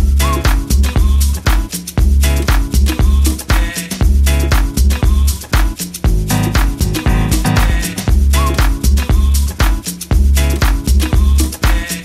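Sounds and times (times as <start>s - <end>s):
disco house dance music: 0.0s - 12.0s
heavy kick drum: 0.0s - 12.0s.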